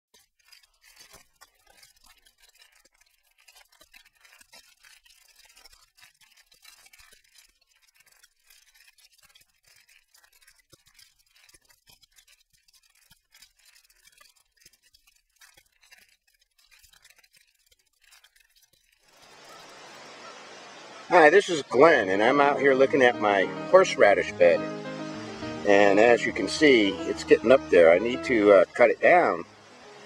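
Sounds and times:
soft crackles: 0:00.1 - 0:30.0
faint hiss: 0:19.1 - 0:30.0.

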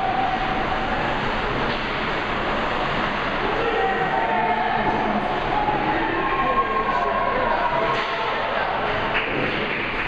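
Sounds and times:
rushing arena noise: 0:00.0 - 0:10.0
faint indistinct voices: 0:03.4 - 0:09.6.

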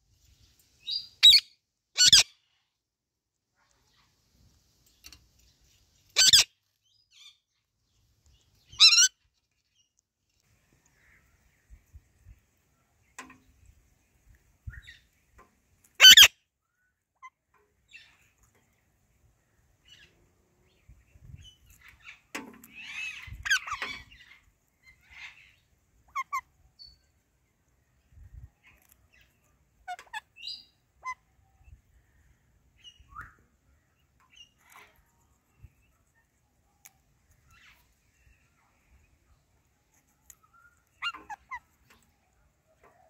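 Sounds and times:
parakeets chirping and chattering: 0:02.0 - 0:02.3, 0:06.0 - 0:06.4, 0:08.6 - 0:09.1, 0:16.0 - 0:16.3, 0:21.4 - 0:26.5, 0:40.4 - 0:42.1.

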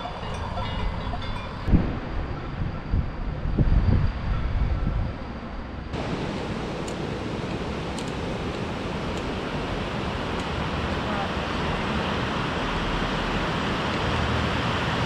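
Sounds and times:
wind rumble on microphone: 0:00.0 - 0:15.0
mountain stream rushing: 0:06.0 - 0:15.0.

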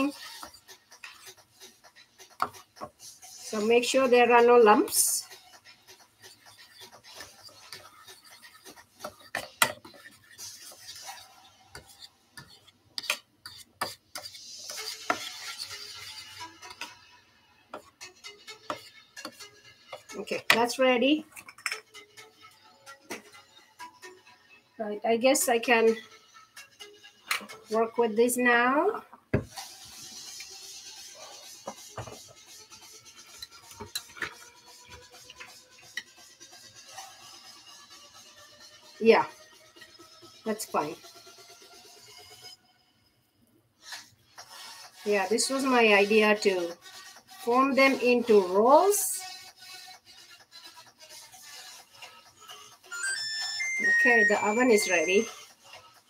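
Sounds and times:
metal spoon scraping a bowl: 0:00.0 - 0:17.0, 0:17.8 - 0:21.9, 0:33.2 - 0:37.0.

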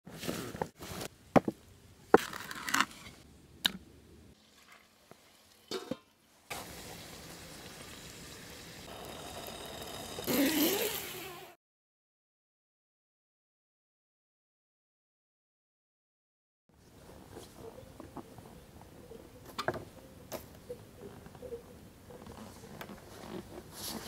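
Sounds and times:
food sizzling over campfire: 0:04.4 - 0:10.2.

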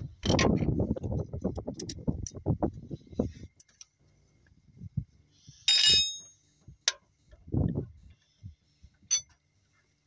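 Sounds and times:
bright ringing metal clink: 0:05.7 - 0:06.4.

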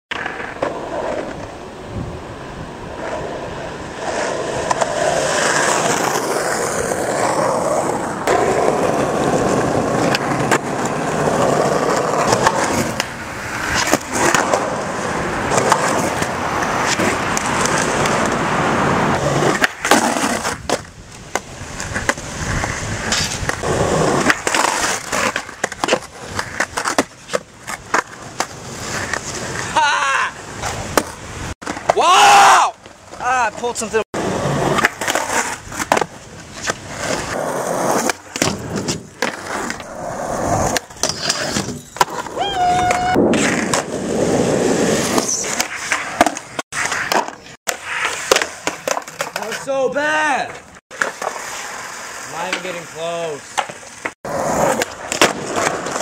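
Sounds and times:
skateboard wheels rolling: 0:00.1 - 0:56.0
skateboard clacks: 0:04.0 - 0:29.7, 0:34.5 - 0:40.0, 0:45.0 - 0:49.7, 0:53.4 - 0:56.0.

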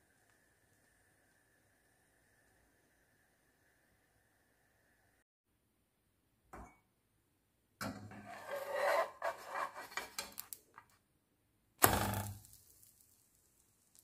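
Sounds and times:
metal spatula scraping frying pan: 0:07.8 - 0:10.5.

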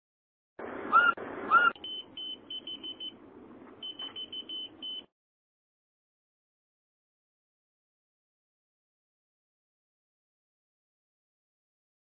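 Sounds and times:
key finder high-pitched beeps: 0:01.0 - 0:03.1, 0:03.8 - 0:05.1.

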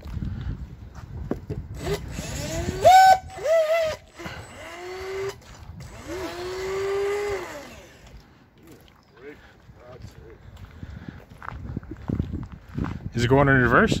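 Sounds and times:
electric boat motor whining: 0:01.8 - 0:08.2.

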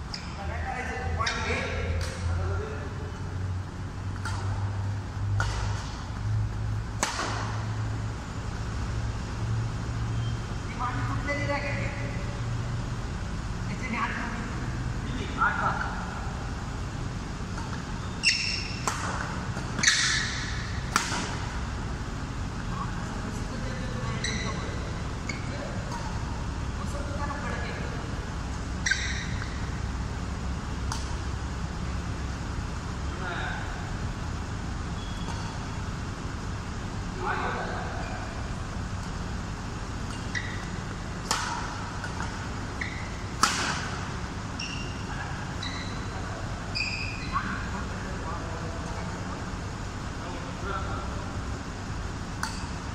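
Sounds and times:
steady low hum: 0:00.0 - 0:52.9
racket hitting shuttlecock: 0:04.1 - 0:07.9, 0:17.5 - 0:21.8, 0:25.2 - 0:26.5, 0:30.7 - 0:31.5, 0:34.9 - 0:36.0, 0:38.9 - 0:44.3, 0:52.3 - 0:52.9
shoes squeaking on court: 0:17.6 - 0:21.4, 0:24.0 - 0:26.3, 0:28.8 - 0:29.8, 0:34.8 - 0:35.9, 0:40.0 - 0:47.6.

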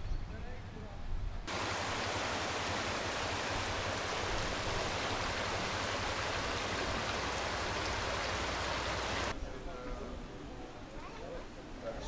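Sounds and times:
stream water rushing: 0:01.5 - 0:09.3.

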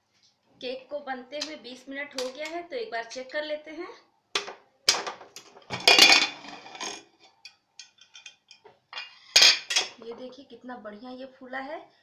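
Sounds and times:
metal lid clattering and scraping: 0:05.7 - 0:07.1.

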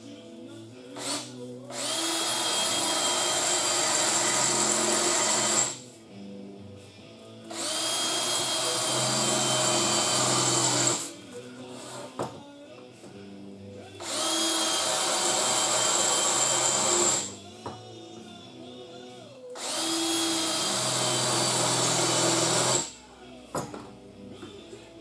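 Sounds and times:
power drill boring into sheet metal: 0:01.0 - 0:05.8, 0:07.5 - 0:11.1, 0:14.0 - 0:17.4, 0:19.6 - 0:23.0.

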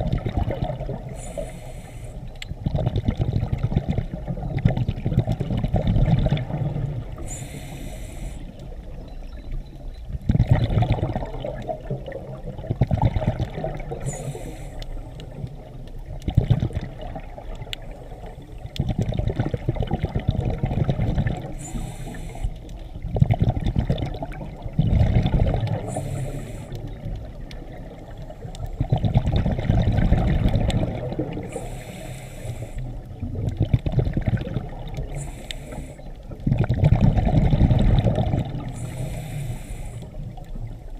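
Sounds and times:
burble of exhaled bubbles: 0:00.0 - 0:01.5, 0:02.5 - 0:07.5, 0:10.1 - 0:40.9
hissing regulator inhale: 0:01.1 - 0:02.4, 0:07.2 - 0:08.7, 0:14.0 - 0:15.4, 0:21.5 - 0:22.9, 0:25.8 - 0:26.9, 0:31.4 - 0:33.1, 0:35.1 - 0:36.2, 0:38.7 - 0:40.4.

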